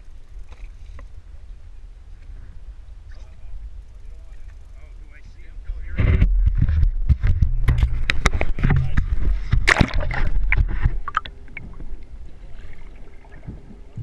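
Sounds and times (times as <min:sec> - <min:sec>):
muffled underwater sound: 0:03.1 - 0:14.0
water splashing: 0:07.9 - 0:14.0.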